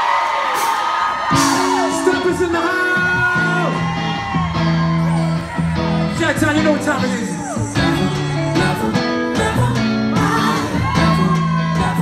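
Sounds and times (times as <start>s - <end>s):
crowd whooping: 0.0s - 8.6s, 9.4s - 12.0s
low band chords: 1.3s - 12.0s
person singing: 7.2s - 12.0s.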